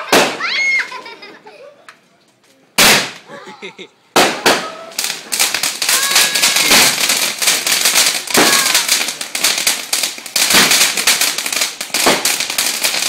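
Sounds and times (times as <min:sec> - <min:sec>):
firework crackling: 0:00.0 - 0:01.3, 0:02.8 - 0:03.3, 0:04.1 - 0:13.0
firework pops: 0:02.8 - 0:03.3, 0:04.2 - 0:13.0.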